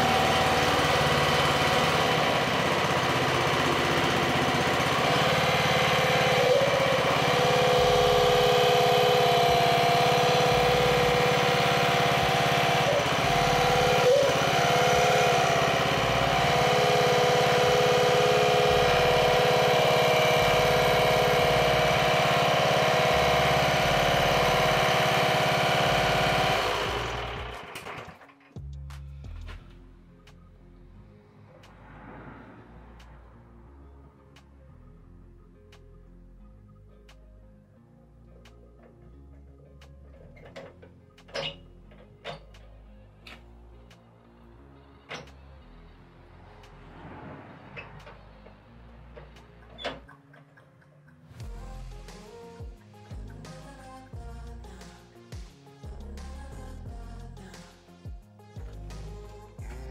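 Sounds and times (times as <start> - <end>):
lawn mower engine running: 0.0 - 28.5.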